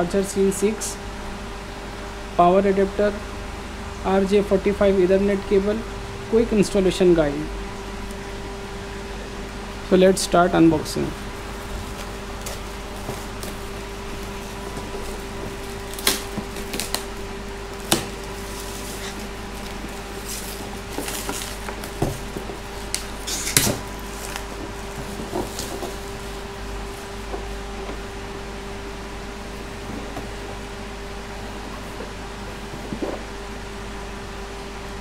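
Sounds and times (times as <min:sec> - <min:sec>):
steady hum: 0:00.0 - 0:35.0
plastic wrap crinkling and tearing: 0:11.4 - 0:27.3.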